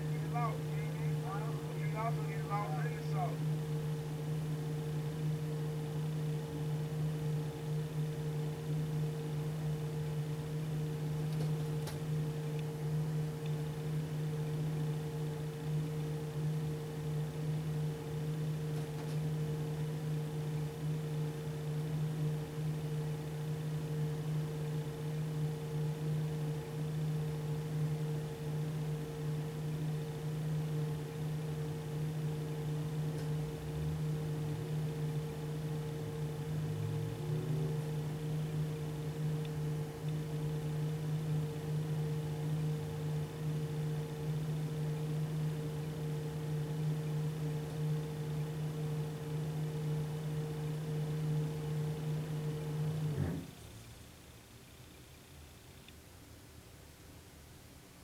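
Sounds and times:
machine hum: 0.0 - 53.9
faint ticks: 54.8 - 56.1.

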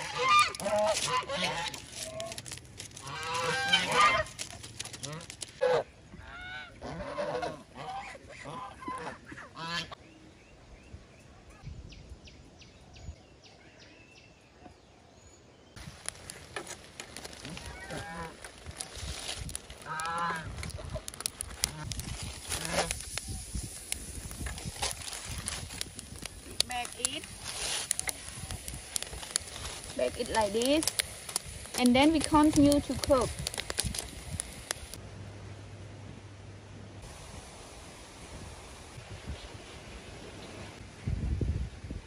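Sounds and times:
geese honking: 0.0 - 2.4, 3.0 - 4.4, 5.0 - 10.0, 17.4 - 18.6, 19.8 - 20.5.

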